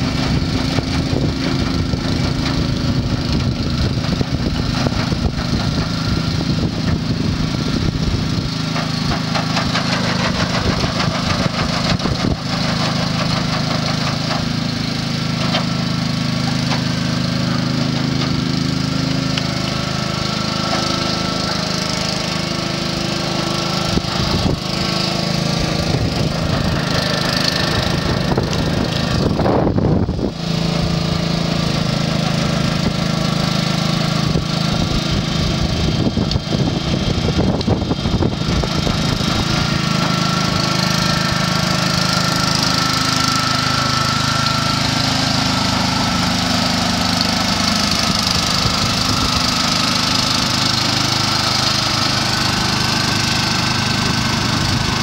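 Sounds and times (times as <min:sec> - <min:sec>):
small engine running: 0:00.0 - 0:55.0
paddle wheels splashing water: 0:38.8 - 0:55.0.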